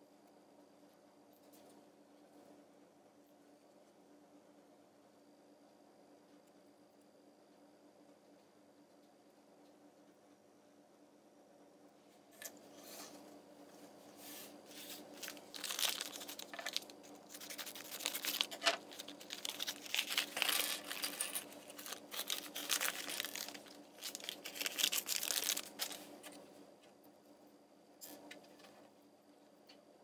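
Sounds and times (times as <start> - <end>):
plastic foil bag crinkling: 14.7 - 26.4.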